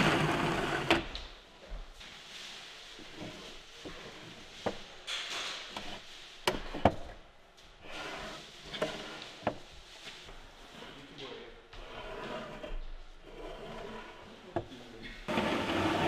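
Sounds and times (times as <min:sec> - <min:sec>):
wooden drawers sliding: 0:00.0 - 0:01.1, 0:03.0 - 0:07.2, 0:07.8 - 0:09.7, 0:11.8 - 0:16.0.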